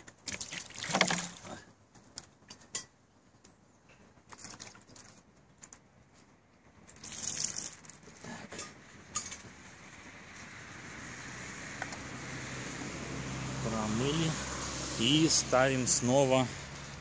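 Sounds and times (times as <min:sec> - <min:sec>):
rush of water: 0:00.0 - 0:01.7, 0:06.8 - 0:08.5
water splashing in a pot: 0:06.9 - 0:08.1.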